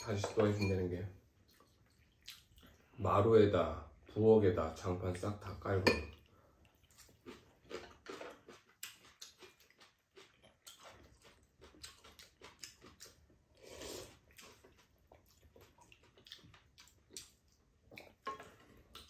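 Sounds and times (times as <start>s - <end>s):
people chewing: 1.4s - 3.0s, 6.1s - 19.0s.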